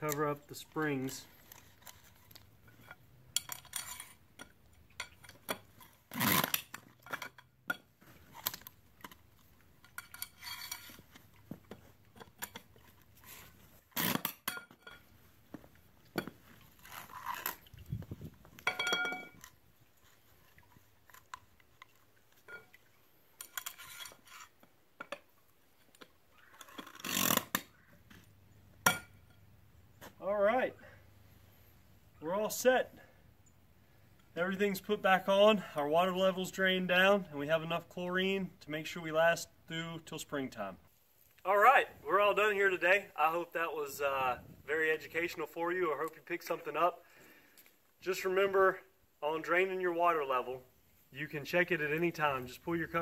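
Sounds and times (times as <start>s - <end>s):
metal clicks and clinks: 2.7s - 5.6s.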